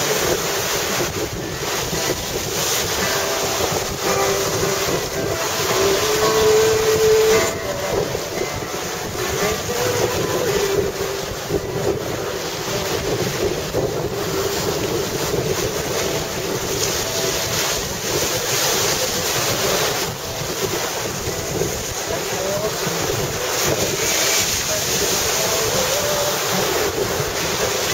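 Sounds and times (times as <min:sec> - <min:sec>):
waves breaking on rocky shore: 0:00.0 - 0:27.9
wind buffeting microphone: 0:00.0 - 0:27.9
faint wavering pitched tone: 0:03.0 - 0:12.4.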